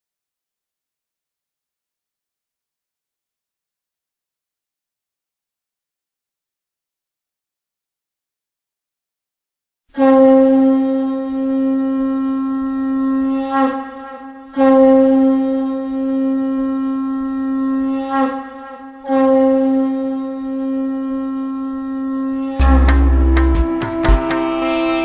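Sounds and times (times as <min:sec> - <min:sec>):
conch shell blasts: 0:10.0 - 0:25.0.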